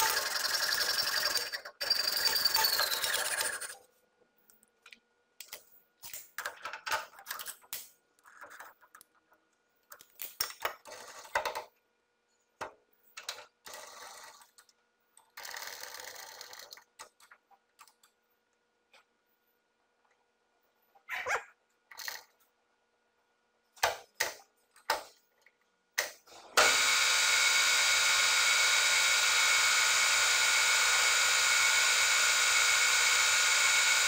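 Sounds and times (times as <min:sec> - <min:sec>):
metallic clicks and rattles of tools: 0:05.4 - 0:09.1.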